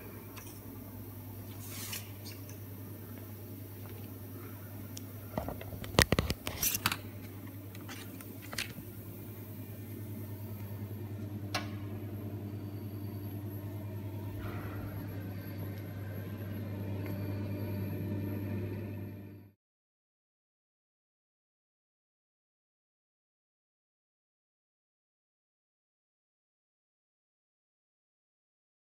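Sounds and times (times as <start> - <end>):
saw electrical hum: 0.0 - 19.6.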